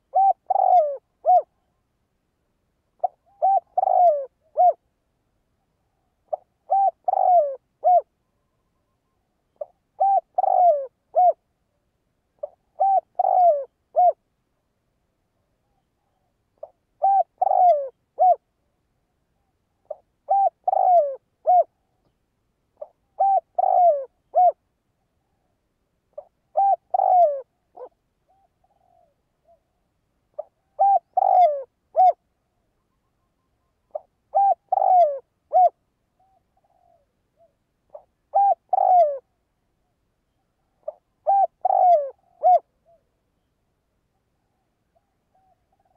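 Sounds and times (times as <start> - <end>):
dove cooing: 0.0 - 1.6, 3.0 - 4.8, 6.2 - 8.1, 9.5 - 11.4, 12.4 - 14.2, 16.1 - 18.5, 19.8 - 22.0, 22.8 - 24.6, 26.1 - 32.2, 33.9 - 39.4, 40.8 - 43.1, 44.4 - 45.9.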